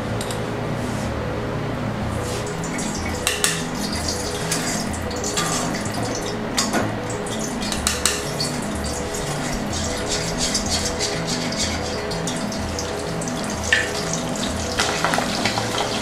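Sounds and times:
quiet background music: 0:00.0 - 0:16.0
metal utensils clinking: 0:02.6 - 0:16.0.

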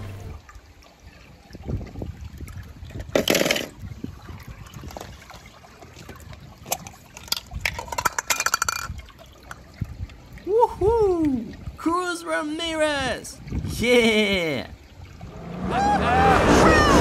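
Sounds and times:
water splashing: 0:00.0 - 0:17.0.

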